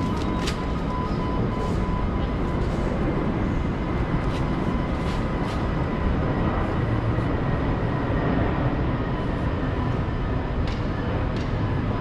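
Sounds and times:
low rumble of traffic: 0.0s - 12.0s.

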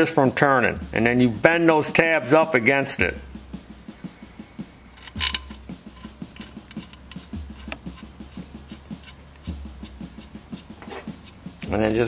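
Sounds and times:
soft low pulsing: 3.1s - 10.8s.

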